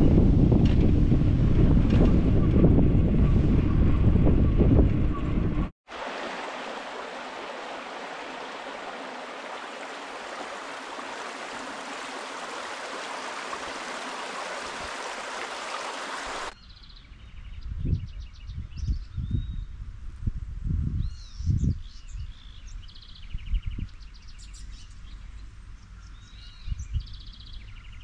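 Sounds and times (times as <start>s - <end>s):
stream running over stones: 5.9s - 16.6s.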